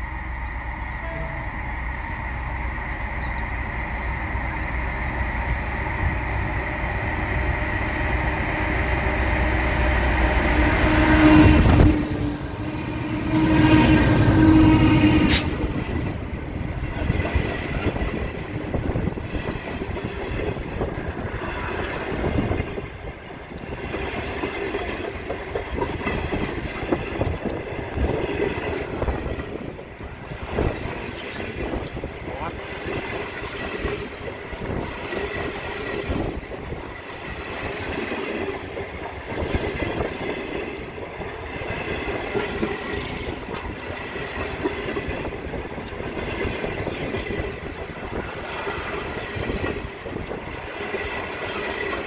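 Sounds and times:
locomotive rumble: 0:00.0 - 0:52.0
train horn blasts: 0:01.0 - 0:01.6, 0:09.6 - 0:15.8
train wheels clattering on rails: 0:02.5 - 0:52.0.

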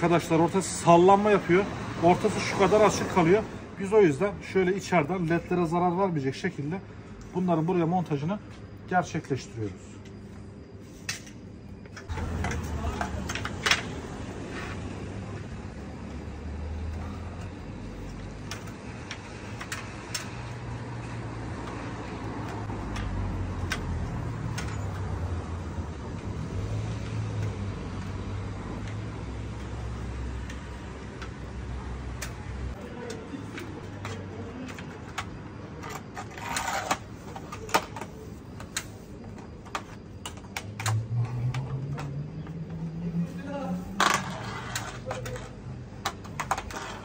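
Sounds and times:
street traffic hum: 0:00.0 - 0:47.0
scraping rustle: 0:43.8 - 0:45.6.

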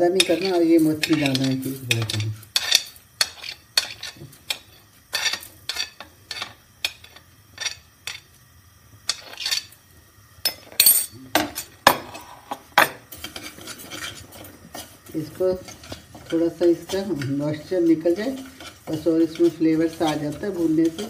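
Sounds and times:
metal spoon scraping steel pan: 0:00.2 - 0:08.2, 0:13.1 - 0:21.0.

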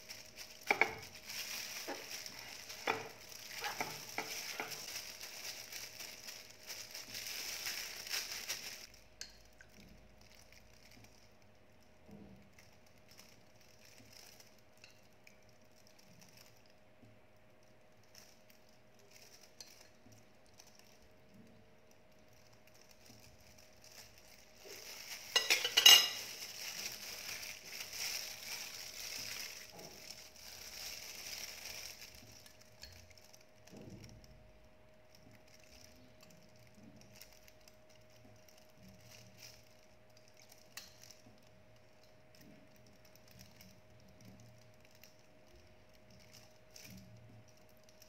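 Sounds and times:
sharp hissing crackle: 0:00.0 - 0:10.6
metal spoon scraping ceramic plate: 0:25.3 - 0:26.3.

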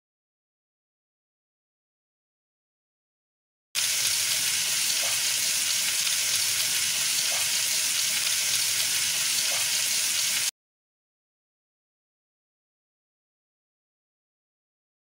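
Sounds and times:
meat sizzling in frying pan: 0:03.8 - 0:10.5.

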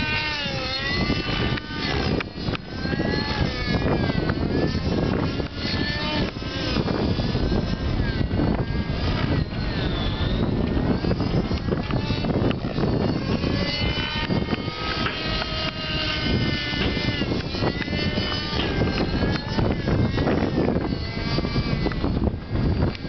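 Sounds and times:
model helicopter engine whine: 0:00.0 - 0:23.0.

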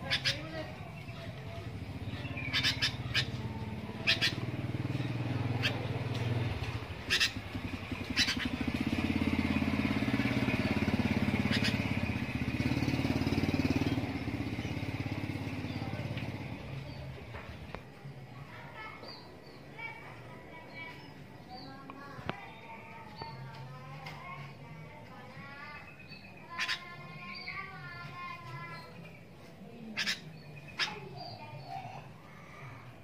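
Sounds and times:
bird chirps: 0:00.0 - 0:17.0
engine drone: 0:00.1 - 0:17.7.

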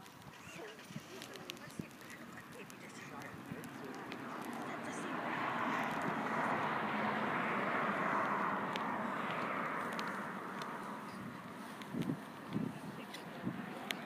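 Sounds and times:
vehicle tyre and road noise: 0:00.0 - 0:14.0.

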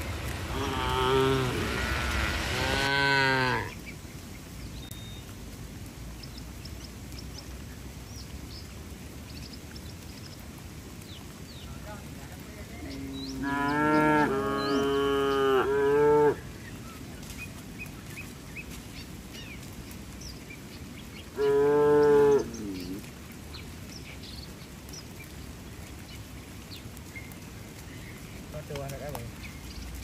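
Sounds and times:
cattle mooing: 0:00.0 - 0:03.7, 0:13.0 - 0:16.4, 0:21.4 - 0:23.0.

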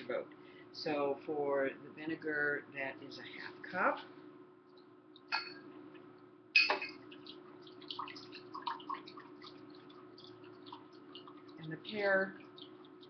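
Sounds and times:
vinegar trickling into glass cup: 0:06.7 - 0:13.0.

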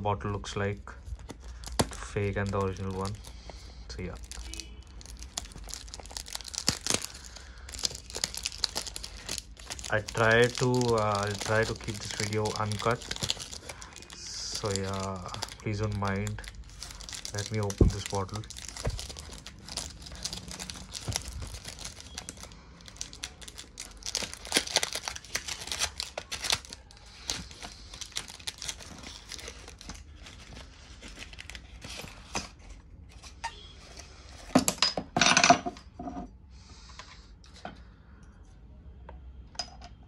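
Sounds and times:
cardboard packaging tearing and rustling: 0:01.2 - 0:32.7.

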